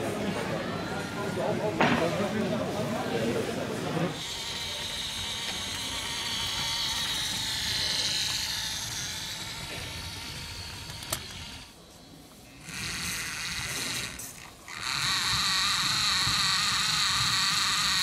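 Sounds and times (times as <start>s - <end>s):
toy tractor electric motor whine: 4.1s - 18.0s.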